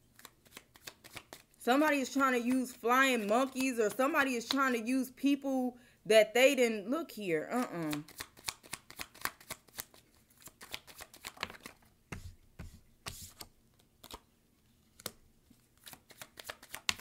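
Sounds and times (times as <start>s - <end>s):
cards shuffling: 0.1s - 4.8s, 7.5s - 14.3s, 14.9s - 17.0s.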